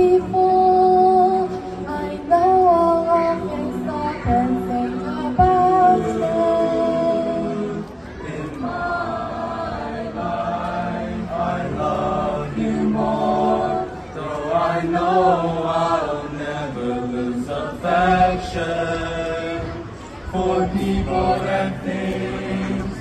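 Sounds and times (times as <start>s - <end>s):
choir singing a cappella: 0.0s - 23.0s.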